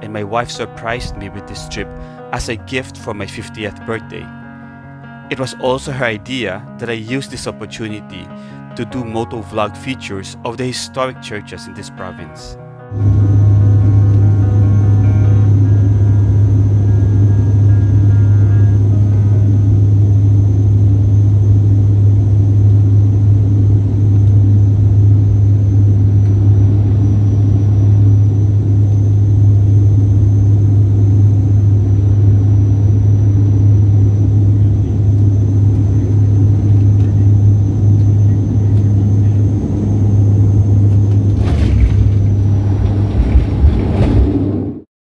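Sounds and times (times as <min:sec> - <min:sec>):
faint high whine: 0:12.9 - 0:43.7
plane engines droning: 0:12.9 - 0:44.8
wheels rumbling on runway: 0:36.6 - 0:44.8.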